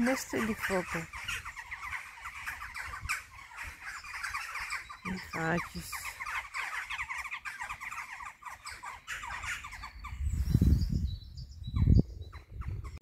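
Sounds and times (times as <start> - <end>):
birds chattering calls: 0.0 - 13.0
low rumbling microphone noise: 10.2 - 13.0.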